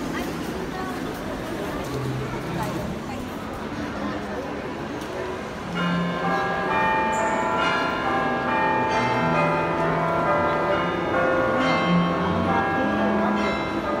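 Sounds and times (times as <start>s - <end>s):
chimed bell notes: 5.7s - 14.0s.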